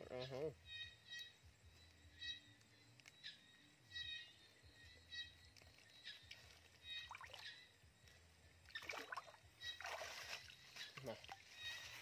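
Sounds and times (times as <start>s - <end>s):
faint chirps: 0.0s - 12.0s
water splashes and trickles: 5.5s - 12.0s.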